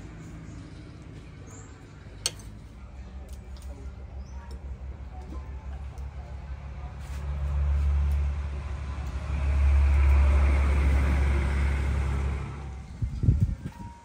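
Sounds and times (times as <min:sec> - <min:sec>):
vehicle passing by: 0:04.6 - 0:13.7.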